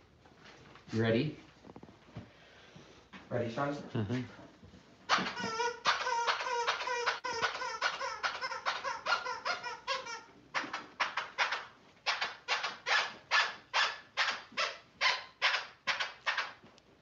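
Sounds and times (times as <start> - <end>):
puppies yipping: 5.1 - 16.6.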